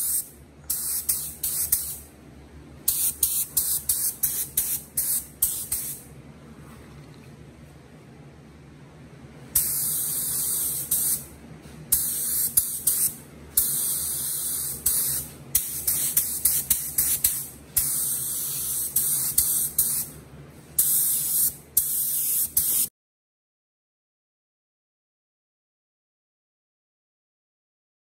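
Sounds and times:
paint spray gun hissing: 0:00.0 - 0:02.1, 0:02.9 - 0:06.1, 0:09.6 - 0:11.3, 0:11.9 - 0:20.1, 0:20.8 - 0:22.9
low steady hum: 0:00.0 - 0:20.8.

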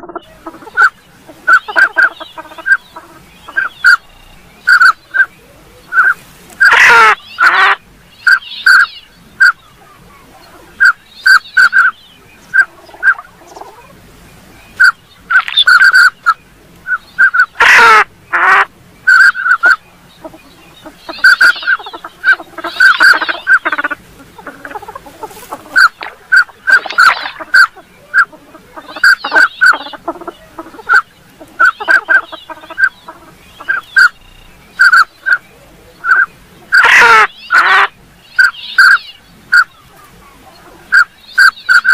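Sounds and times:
rough duck calls: 0:00.0 - 0:05.3, 0:05.9 - 0:14.0, 0:14.8 - 0:35.4, 0:36.0 - 0:41.9
duck whistled calls: 0:03.5 - 0:05.3, 0:05.9 - 0:09.6, 0:10.8 - 0:13.3, 0:14.8 - 0:19.8, 0:20.8 - 0:24.5, 0:25.7 - 0:33.0, 0:33.6 - 0:35.4, 0:36.0 - 0:39.8, 0:40.9 - 0:41.9.

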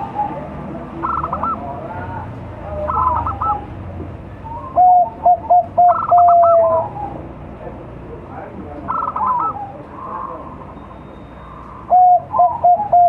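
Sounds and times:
dove cooing song: 0:00.0 - 0:03.8, 0:04.4 - 0:07.4, 0:08.8 - 0:13.0
higher warbling bird calls: 0:00.0 - 0:03.8, 0:04.4 - 0:07.3, 0:08.8 - 0:13.0.

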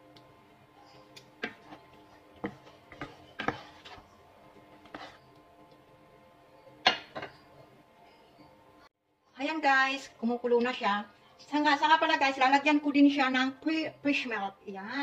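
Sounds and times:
wooden spatula scraping frying pan: 0:01.4 - 0:05.3.

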